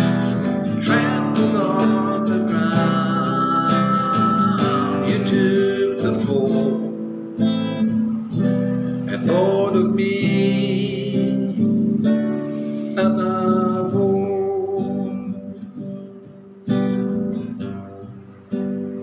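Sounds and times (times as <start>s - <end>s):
man singing: 0.0s - 7.6s, 9.0s - 12.2s, 12.9s - 15.8s
strummed acoustic guitar: 0.0s - 19.0s.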